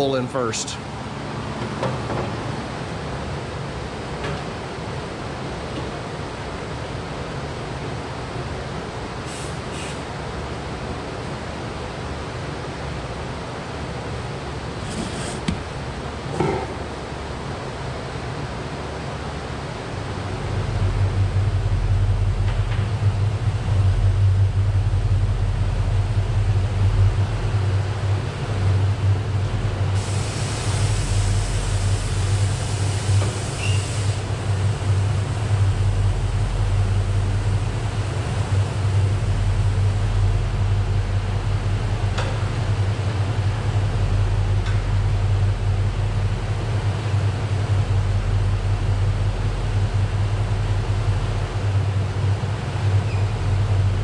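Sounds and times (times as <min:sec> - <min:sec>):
hiss: 0:09.2 - 0:10.1, 0:14.8 - 0:15.6, 0:29.9 - 0:39.8.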